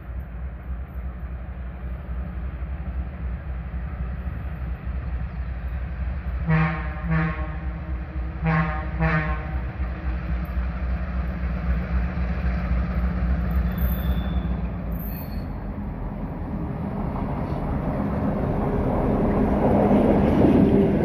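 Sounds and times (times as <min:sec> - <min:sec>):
steady low train rumble: 0:00.0 - 0:21.0
locomotive horn blasts: 0:06.4 - 0:09.6.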